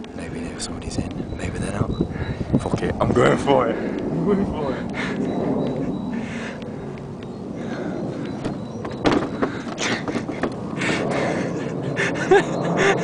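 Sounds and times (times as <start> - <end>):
knocks and thumps on wooden fence: 8.4 - 10.6.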